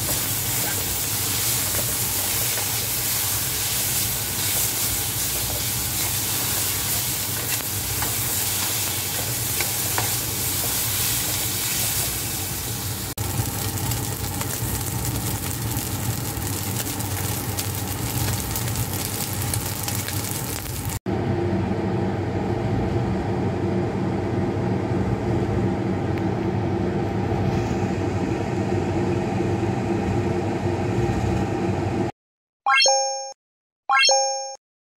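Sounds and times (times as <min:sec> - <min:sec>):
spatula stirring and scraping: 0:00.0 - 0:12.8
food sizzling in a wok: 0:00.0 - 0:21.0.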